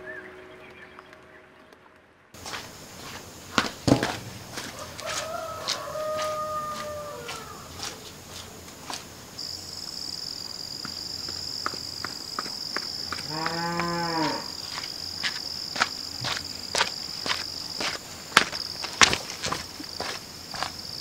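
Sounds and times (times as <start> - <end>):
cow mooing: 13.2 - 14.6.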